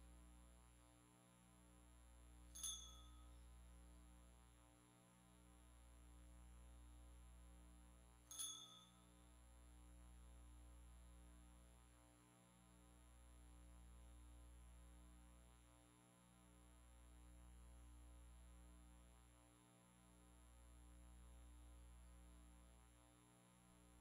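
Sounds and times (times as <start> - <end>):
faint low hum: 0.0 - 24.0.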